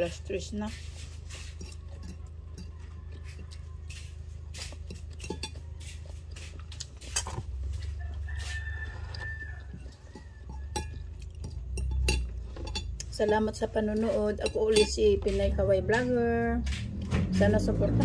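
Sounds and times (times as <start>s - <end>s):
rooster crowing: 7.7s - 11.0s.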